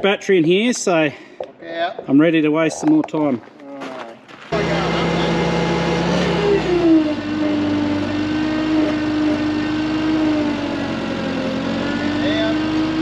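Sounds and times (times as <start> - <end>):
engine revving: 4.5 - 13.0.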